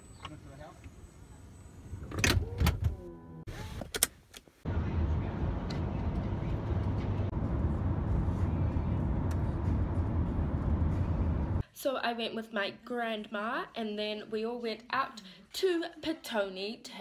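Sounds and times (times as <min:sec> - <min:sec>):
car road and engine rumble: 0:01.8 - 0:11.6.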